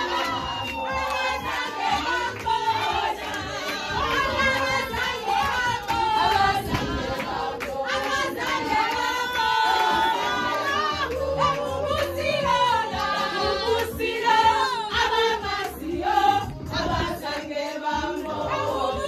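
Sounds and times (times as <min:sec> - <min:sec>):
hand-clapping: 0:00.0 - 0:14.0
women singing together: 0:00.0 - 0:19.0.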